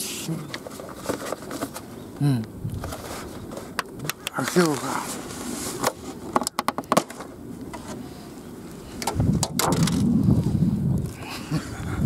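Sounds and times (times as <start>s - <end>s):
low rumbling noise: 7.3s - 12.0s.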